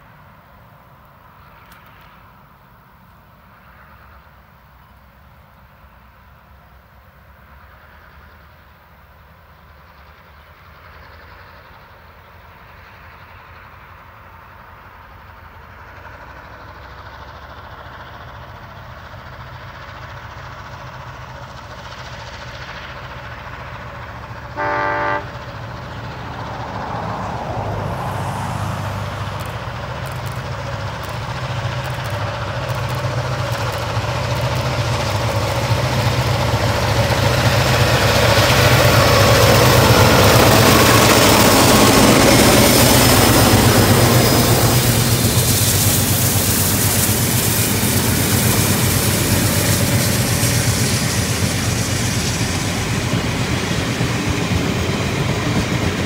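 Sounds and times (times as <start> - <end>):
deep locomotive engine drone: 0.0 - 56.0
locomotive warning horn blast: 24.5 - 25.6.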